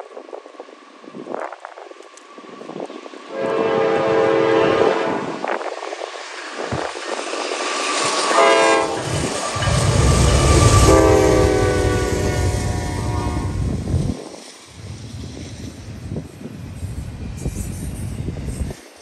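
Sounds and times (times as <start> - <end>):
deep rumble of diesel locomotives: 0.0 - 19.0
locomotive air horn blasts: 3.3 - 5.4, 8.3 - 13.7.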